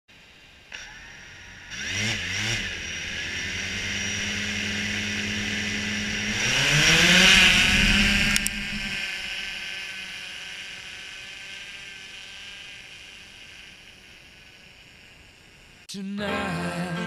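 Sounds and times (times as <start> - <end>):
drone propellers whining and humming: 0.1 - 15.9.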